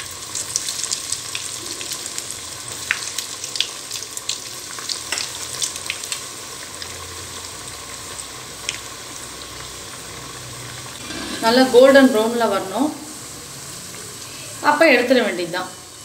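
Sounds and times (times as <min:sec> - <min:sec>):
oil crackling and popping: 0:00.0 - 0:11.2
food deep-frying in hot oil: 0:00.0 - 0:16.0.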